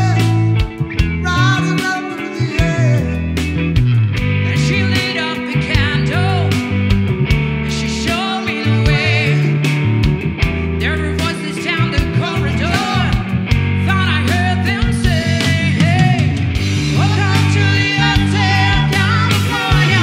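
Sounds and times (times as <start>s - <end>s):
bass guitar: 0.0s - 20.0s
electric guitar: 0.0s - 20.0s
woman singing lead: 7.7s - 9.7s, 10.9s - 20.0s
drums with cymbals: 15.0s - 20.0s.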